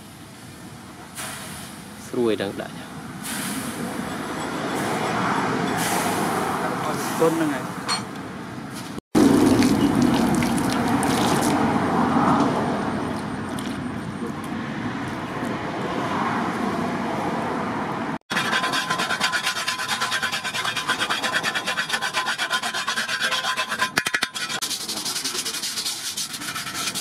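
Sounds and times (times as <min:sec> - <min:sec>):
hand file rasping on metal: 0:18.3 - 0:27.0.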